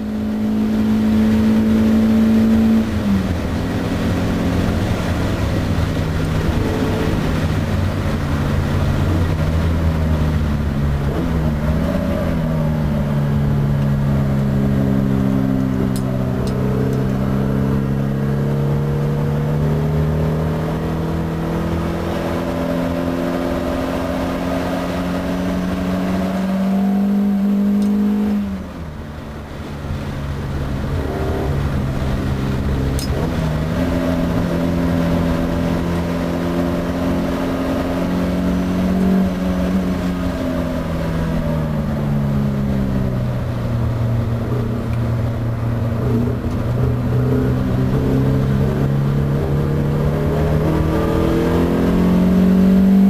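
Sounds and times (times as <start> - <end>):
car engine accelerating: 0.0 - 53.0.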